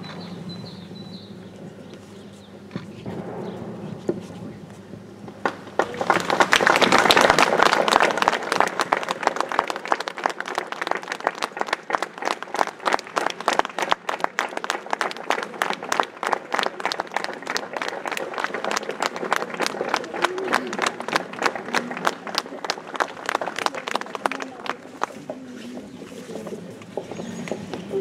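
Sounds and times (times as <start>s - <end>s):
audience applauding: 5.4s - 26.0s.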